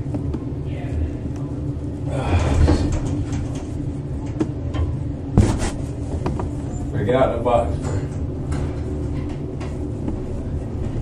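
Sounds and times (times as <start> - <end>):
elevator doors sliding open: 2.2 - 4.3.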